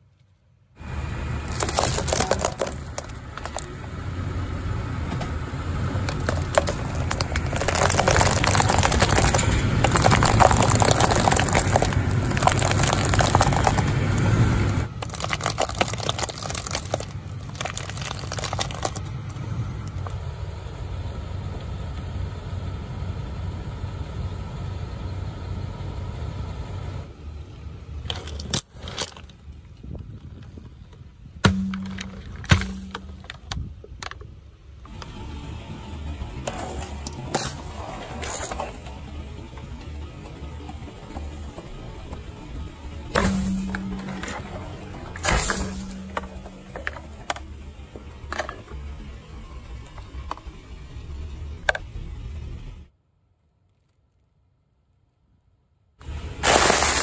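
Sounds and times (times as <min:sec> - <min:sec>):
low rumble of car: 0:00.0 - 0:57.0
plastic pegs crackling and snapping: 0:06.0 - 0:20.1.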